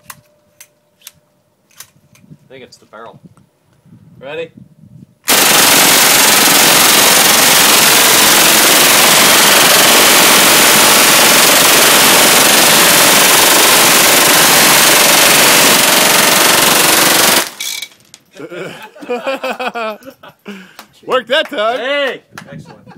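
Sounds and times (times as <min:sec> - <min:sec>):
submachine gun firing full-auto: 0:05.3 - 0:17.6.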